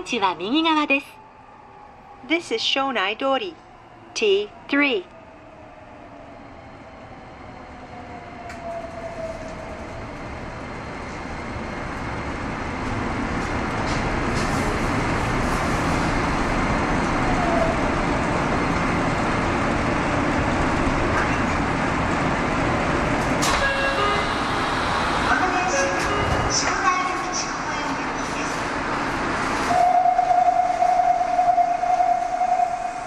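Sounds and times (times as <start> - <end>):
train running rumble: 8.5 - 32.0.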